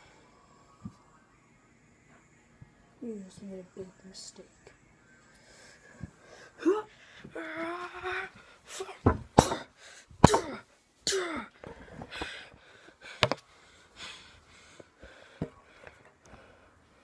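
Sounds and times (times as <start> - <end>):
sharp knocks and thumps: 9.0 - 10.6.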